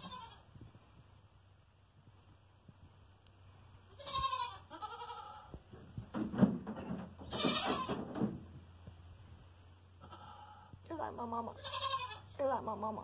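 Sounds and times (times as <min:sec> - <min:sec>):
goats bleating: 0:03.9 - 0:05.5, 0:07.2 - 0:08.0, 0:10.0 - 0:10.7, 0:11.6 - 0:12.3.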